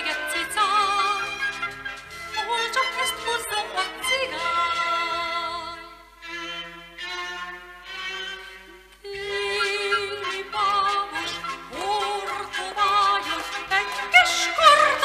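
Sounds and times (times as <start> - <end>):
woman singing operetta: 0.0 - 1.5, 2.3 - 6.0, 9.0 - 15.0
orchestral accompaniment: 0.0 - 15.0
violin melody with vibrato: 0.0 - 15.0.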